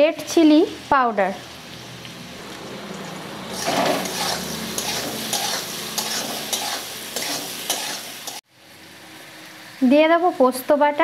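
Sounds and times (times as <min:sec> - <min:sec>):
food sizzling in oil: 0:00.0 - 0:11.0
metal spatula scraping pan: 0:03.0 - 0:08.4.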